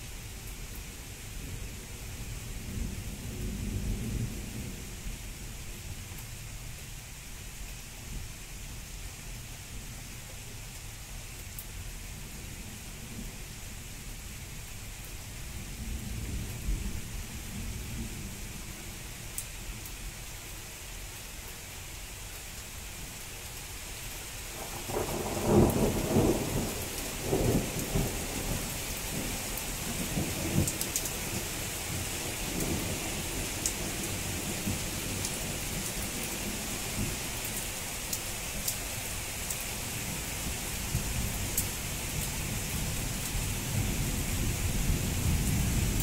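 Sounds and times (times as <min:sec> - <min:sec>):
steady rain: 0:00.0 - 0:46.0
rolling thunder: 0:24.8 - 0:30.7.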